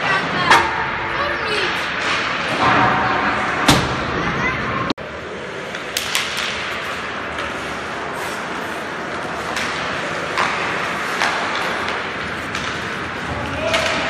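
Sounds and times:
hockey sticks and puck clacking: 0.0s - 4.0s, 5.5s - 14.0s
skates hissing on ice: 6.8s - 10.2s.

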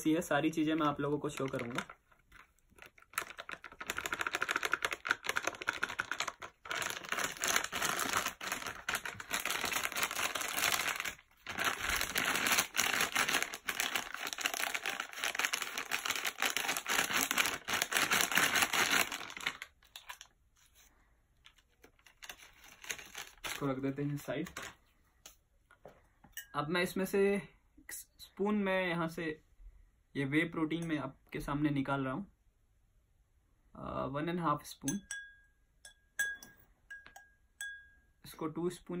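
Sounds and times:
foil pouch crinkling: 0.7s - 20.8s, 21.4s - 24.8s.

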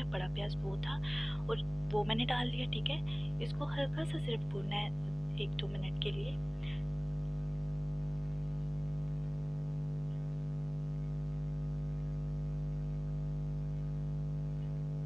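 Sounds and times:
steady electrical hum: 0.0s - 15.0s.

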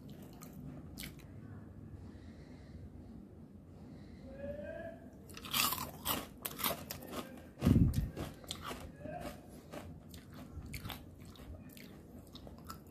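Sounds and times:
crunchy chewing: 5.3s - 12.9s.

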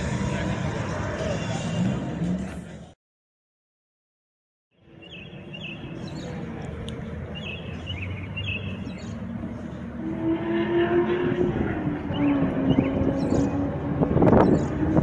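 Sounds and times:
birds chirping: 4.8s - 10.1s, 11.7s - 15.0s.

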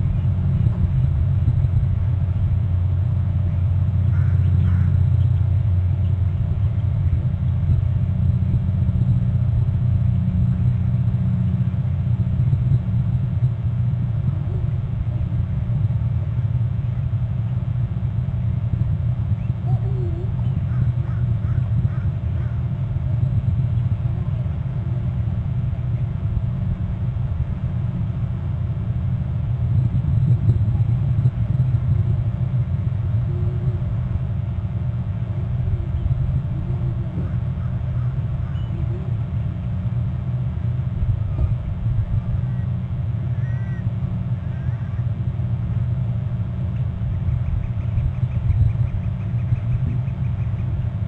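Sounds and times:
steady low rumble: 0.0s - 51.0s
faint short calls: 42.5s - 45.0s.

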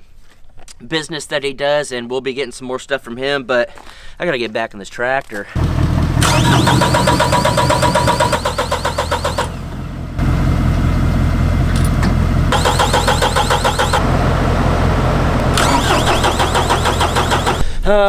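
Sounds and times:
steady engine running: 5.6s - 17.7s
diesel engine cranking: 5.6s - 17.8s.

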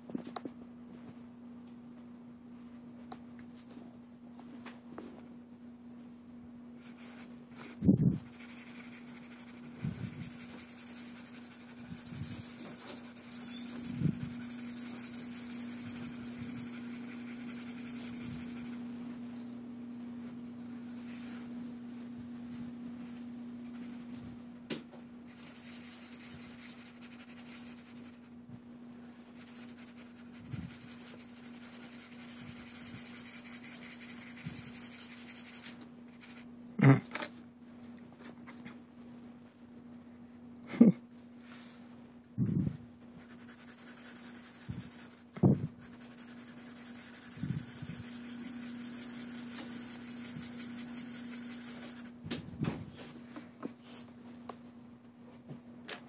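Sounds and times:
steady low hum: 0.0s - 56.0s
marker rubbing on paper: 6.8s - 18.8s, 25.3s - 28.3s, 29.3s - 36.5s, 43.2s - 52.2s.

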